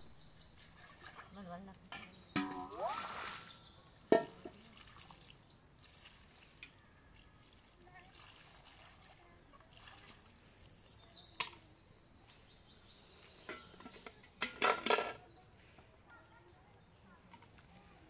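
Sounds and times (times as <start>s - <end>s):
small birds chirping: 0.0s - 8.1s, 9.2s - 18.0s
carrots clattering in metal basin: 13.4s - 15.2s.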